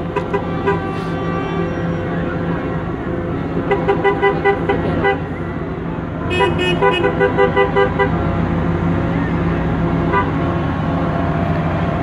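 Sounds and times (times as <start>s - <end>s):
bus engine passing: 0.0s - 12.0s
bus horn short toots: 0.1s - 2.2s, 6.3s - 8.2s.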